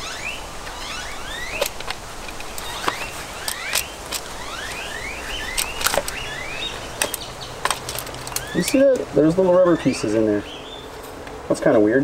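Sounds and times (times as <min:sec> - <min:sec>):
screwdriver squeaking on screw: 0:01.0 - 0:09.0
metal on metal clicks: 0:01.5 - 0:09.1.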